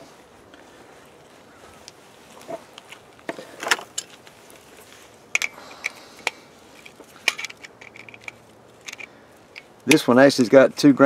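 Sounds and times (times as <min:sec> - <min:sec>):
metallic clicks and rattles: 0:05.3 - 0:10.2.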